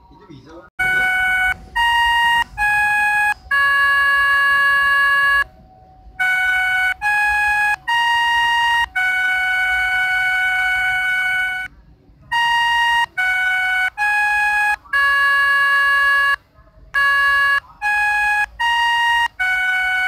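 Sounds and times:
synthesized melodica chime tune: 0:00.8 - 0:05.4, 0:06.2 - 0:11.7, 0:17.0 - 0:20.0.

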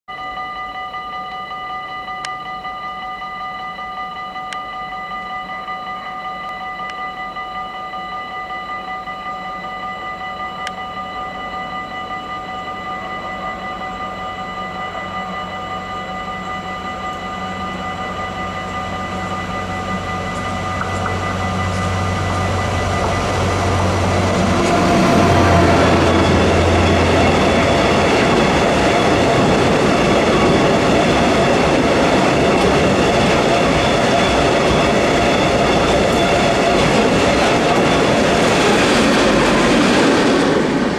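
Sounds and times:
steady high whine: 0:00.1 - 0:40.9
locomotive engine rumble: 0:16.3 - 0:40.9
wagons rolling on rails: 0:19.1 - 0:40.9
train clatter: 0:20.1 - 0:40.9.

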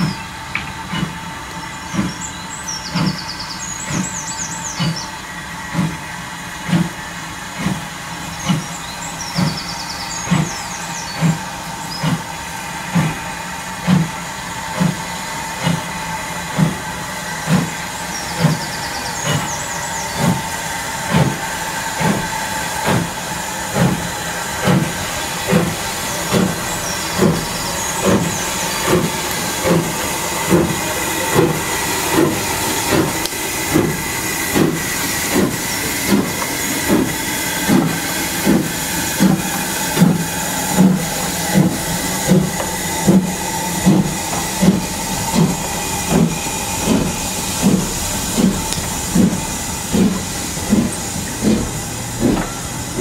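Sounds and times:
steam hissing: 0:00.0 - 0:53.0
steam locomotive exhaust chuffs: 0:00.0 - 0:53.0.

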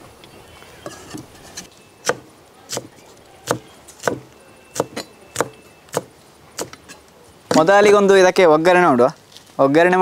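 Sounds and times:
knife chopping on wooden block: 0:02.0 - 0:06.8.

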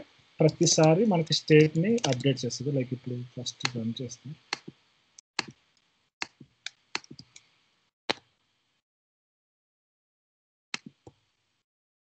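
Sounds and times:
computer mouse clicking: 0:02.0 - 0:02.3, 0:06.2 - 0:07.5.

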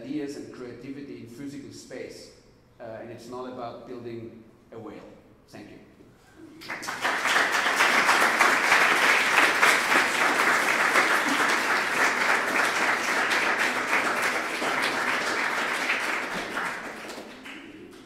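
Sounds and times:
audience applauding: 0:06.6 - 0:18.0.

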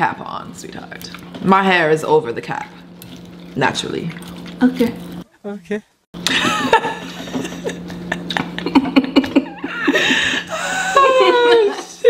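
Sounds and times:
man laughing heartily: 0:06.2 - 0:11.7
women chuckling and giggling: 0:06.2 - 0:12.0.

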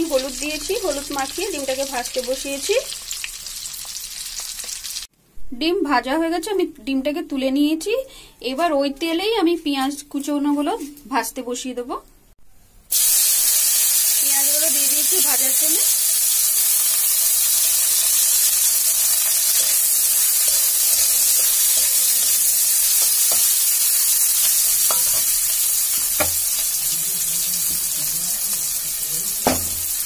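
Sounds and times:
onions sizzling in hot oil: 0:00.0 - 0:05.1, 0:12.9 - 0:30.0.

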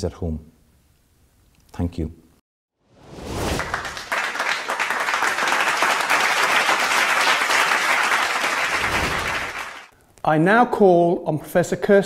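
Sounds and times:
crowd applause: 0:03.5 - 0:09.9.

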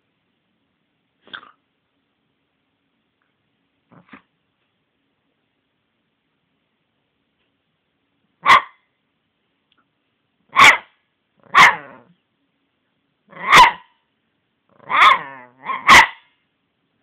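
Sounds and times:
puppy barking: 0:08.4 - 0:08.8, 0:10.5 - 0:12.1, 0:13.3 - 0:14.0, 0:14.8 - 0:16.3.

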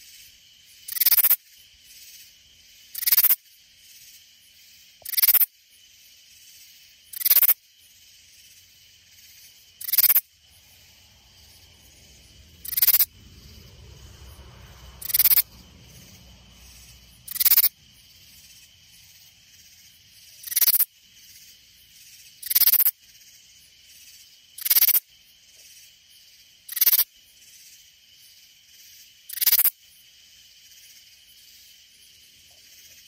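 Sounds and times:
katydid rasping call: 0:00.9 - 0:01.4, 0:02.9 - 0:03.4, 0:05.0 - 0:05.5, 0:07.1 - 0:07.6, 0:08.4 - 0:14.1, 0:15.0 - 0:23.0, 0:24.6 - 0:25.0, 0:26.7 - 0:27.1.

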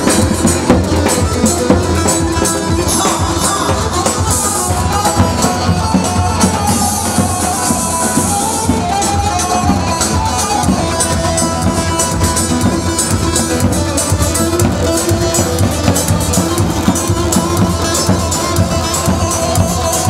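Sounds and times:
plucked lute melody: 0:00.0 - 0:20.0
steady drum beat: 0:00.0 - 0:20.0.

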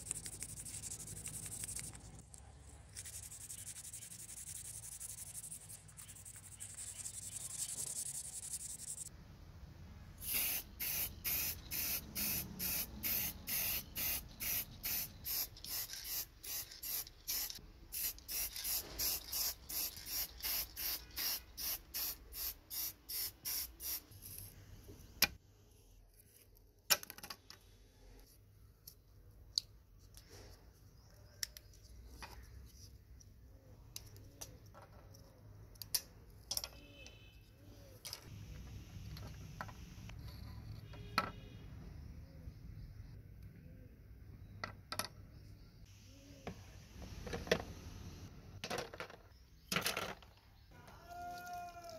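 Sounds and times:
sandpaper rubbing: 0:00.0 - 0:02.2, 0:02.9 - 0:09.1
spray can hissing bursts: 0:10.2 - 0:24.1.

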